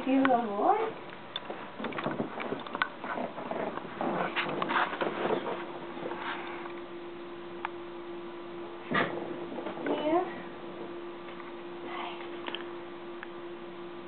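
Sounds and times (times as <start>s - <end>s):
steady low hum: 0.0s - 14.0s
person shifting on cushions: 1.5s - 6.7s.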